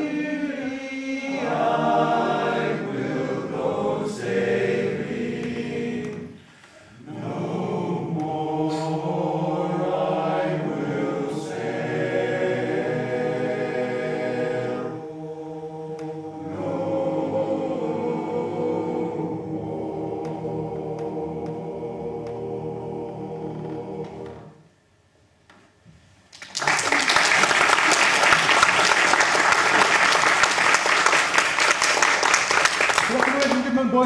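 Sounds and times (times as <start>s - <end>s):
male chorus singing a cappella: 0.0s - 24.6s.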